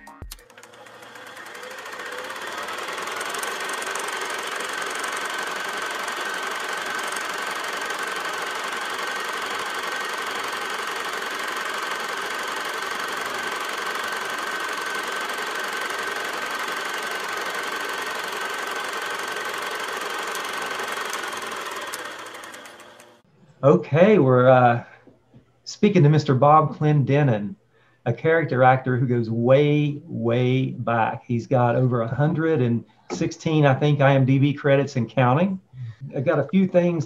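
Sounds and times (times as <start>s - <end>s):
film projector whirring: 0.1s - 23.3s, 32.1s - 34.4s.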